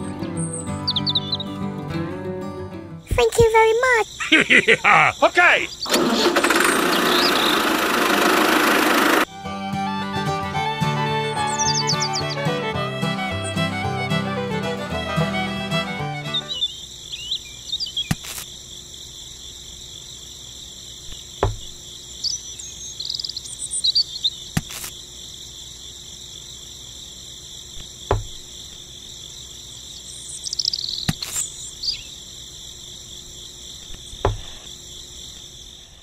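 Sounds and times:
crickets chirping: 0:00.0 - 0:01.9, 0:02.8 - 0:08.1, 0:10.2 - 0:36.0
twigs knocking on stones: 0:18.0 - 0:18.5, 0:21.1 - 0:21.8, 0:24.6 - 0:24.9, 0:27.8 - 0:28.5, 0:31.1 - 0:31.5.

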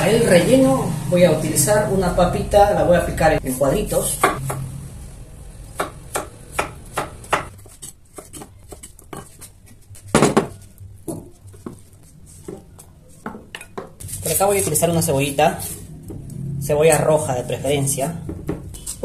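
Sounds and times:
knife chopping on wooden board: 0:05.8 - 0:09.4.

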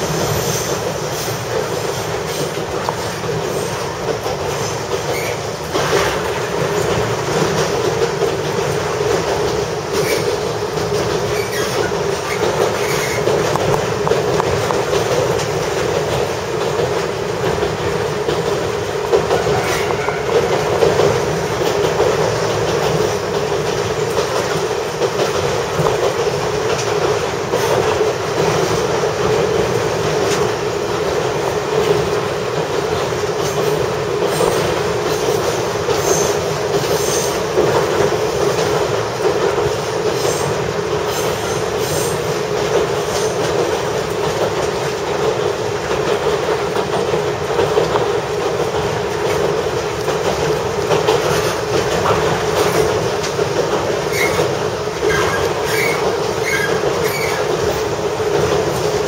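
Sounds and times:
diesel railcar engine running: 0:00.0 - 0:59.0
wheels clicking over rails: 0:00.0 - 0:59.0
wheel squeals: 0:04.6 - 0:05.5, 0:10.0 - 0:10.4, 0:11.2 - 0:13.5, 0:54.0 - 0:57.8.

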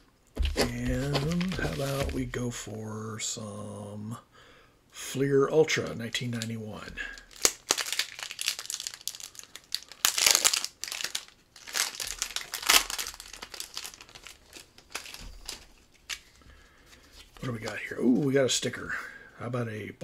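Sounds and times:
foil wrapper crinkling and tearing: 0:00.4 - 0:02.2, 0:07.0 - 0:17.8.

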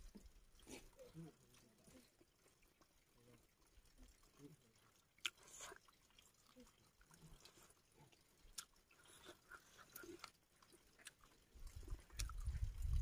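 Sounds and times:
person chewing and mouth smacks: 0:05.2 - 0:13.0.

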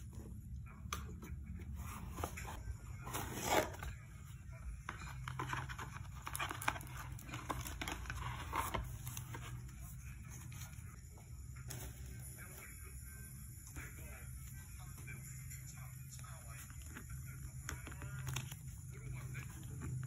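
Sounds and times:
cardboard box rustling and scraping: 0:01.8 - 0:03.9, 0:05.0 - 0:09.6.

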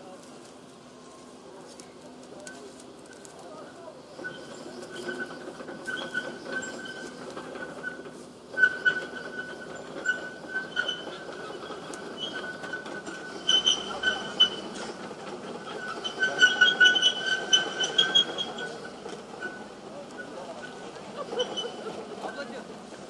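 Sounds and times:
heavy machine moving on track: 0:00.0 - 0:23.0
high metallic squeal: 0:04.1 - 0:21.9.

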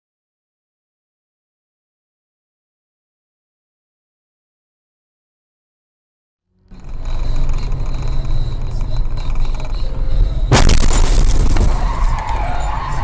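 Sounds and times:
car road rumble: 0:06.5 - 0:13.0
loud crash impact: 0:10.5 - 0:12.5.

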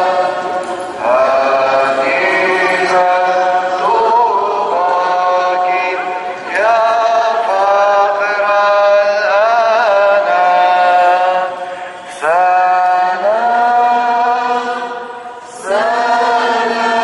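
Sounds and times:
priest chanting a hymn: 0:00.0 - 0:17.0.

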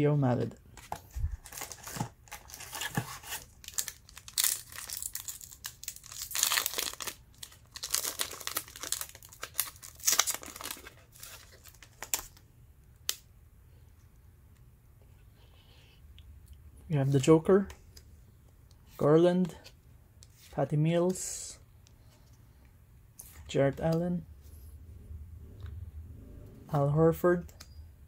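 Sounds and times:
plastic wrapper tearing and crinkling: 0:01.4 - 0:12.4.

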